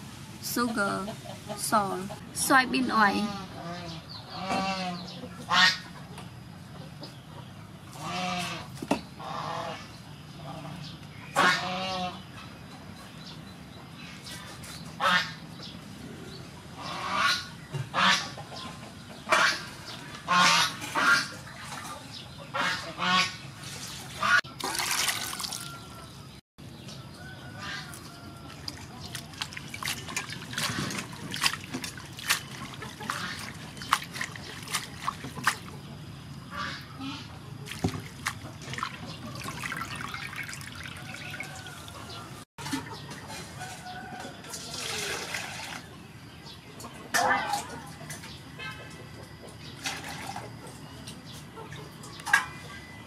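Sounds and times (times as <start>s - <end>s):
water splashing in steel bowl: 24.6s - 25.7s, 28.5s - 35.7s, 37.7s - 42.0s
fowl honking calls: 36.5s - 37.4s.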